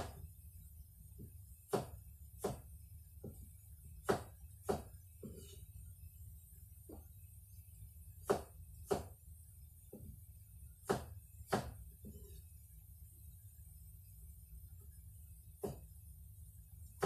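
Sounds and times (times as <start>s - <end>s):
low steady hum: 0.0s - 17.0s
sharp knocks on a hard surface: 1.2s - 5.6s, 8.2s - 9.2s, 10.8s - 12.2s, 15.6s - 15.9s.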